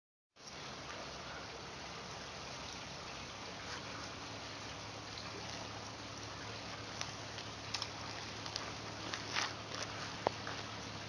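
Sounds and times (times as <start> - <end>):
outdoor background hiss: 0.4 - 11.0
faint clicks: 7.0 - 10.4.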